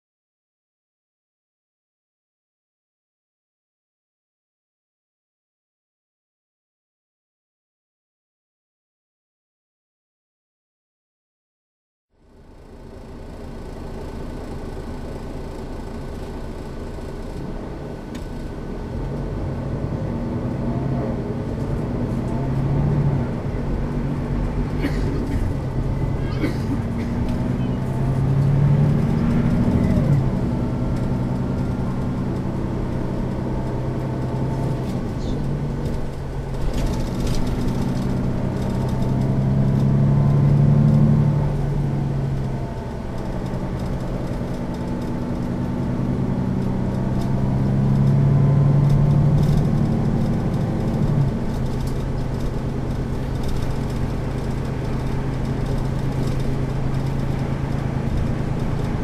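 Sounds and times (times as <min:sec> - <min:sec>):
bus diesel engine idling: 0:12.2 - 0:19.0, 0:23.2 - 0:38.8, 0:50.4 - 0:59.0.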